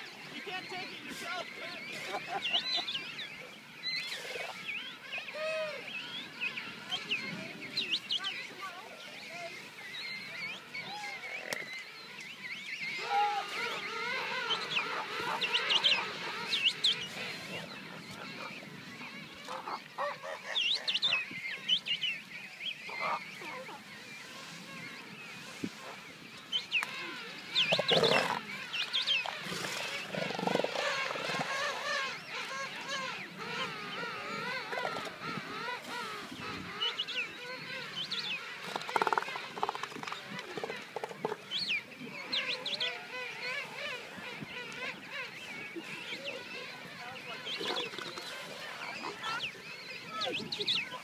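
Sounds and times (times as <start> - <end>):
penguin colony calling: 12.8 - 51.0
elephant seals calling: 12.9 - 21.4, 26.6 - 51.0.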